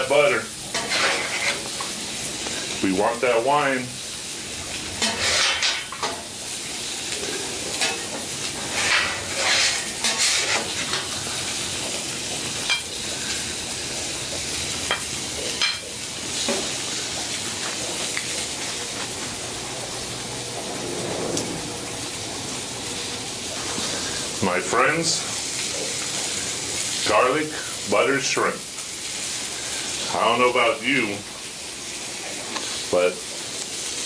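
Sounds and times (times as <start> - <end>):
meat sizzling on griddle: 0.0 - 34.0
metal spatula scraping and clinking: 5.0 - 6.2, 8.7 - 11.0.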